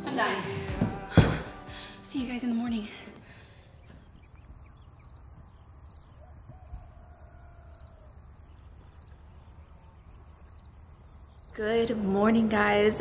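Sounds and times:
insects chorusing: 3.2 - 13.0
distant rooster crowing: 5.2 - 10.2.

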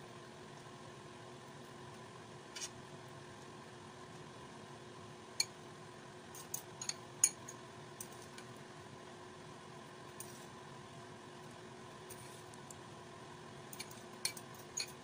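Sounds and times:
faint steady hum: 0.0 - 15.0
utensils clinking on metal tray: 13.7 - 15.0.

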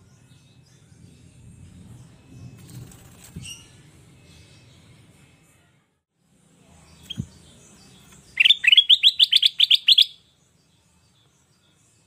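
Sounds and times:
bulbul singing rising chirps: 6.8 - 11.8.

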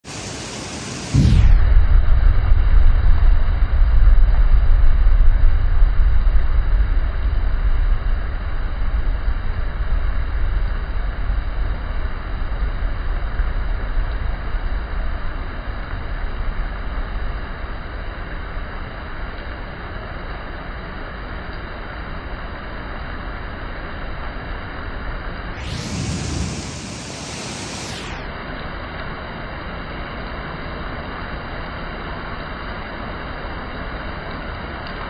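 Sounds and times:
steady hiss of rain: 0.0 - 35.0
deep rumble: 1.0 - 19.8, 25.6 - 28.2.

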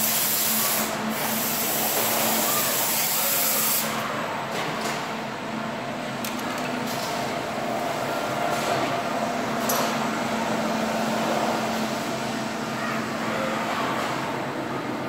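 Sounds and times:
loud hiss: 0.0 - 4.0
conveyor belts humming: 0.0 - 15.0.

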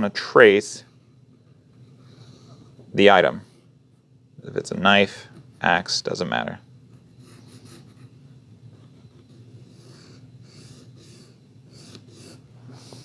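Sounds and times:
faint steady hum: 0.0 - 13.0
pencil scratching on paper: 6.9 - 13.0.

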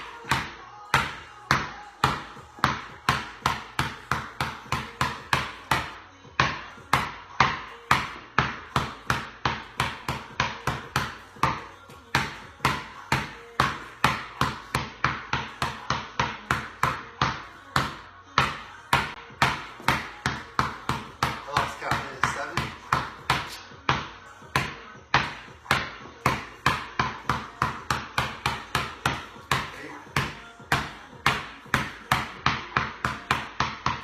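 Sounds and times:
basketball bouncing on concrete: 0.0 - 34.0.

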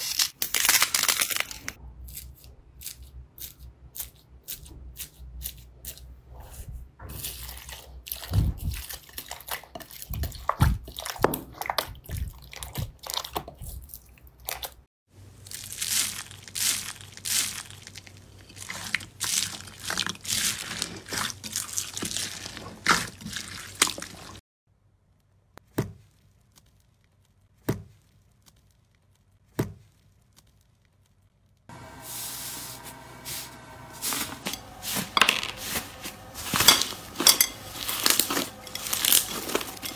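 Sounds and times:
hands squishing bead slime: 15.4 - 24.4.

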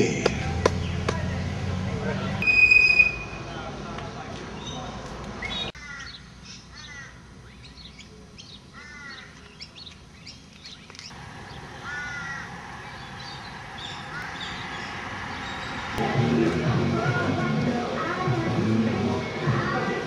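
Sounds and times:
small birds chirping: 4.5 - 16.0
crows cawing: 5.8 - 7.2, 8.7 - 9.4, 11.8 - 13.1, 13.7 - 15.0.

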